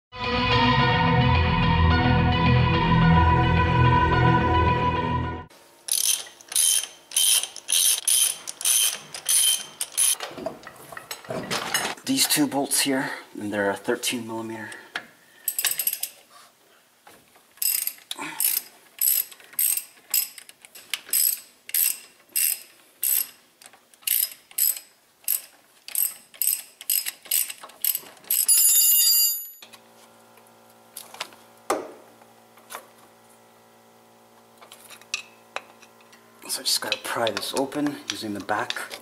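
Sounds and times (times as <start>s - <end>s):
ratchet wrench clicking: 5.9s - 10.2s, 17.6s - 28.6s.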